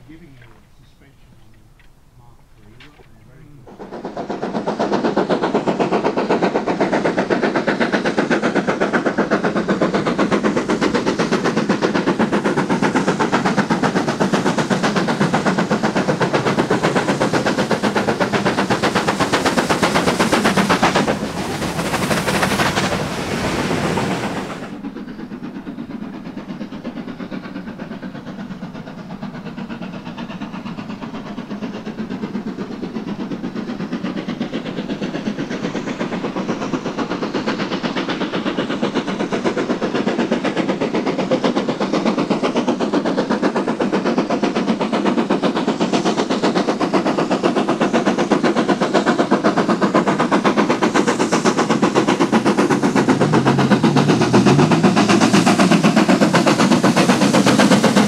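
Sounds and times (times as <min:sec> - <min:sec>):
coaches rolling and clattering: 0:00.0 - 0:03.4
steam hiss: 0:00.0 - 0:58.0
steam locomotive exhaust beats: 0:00.0 - 0:58.0.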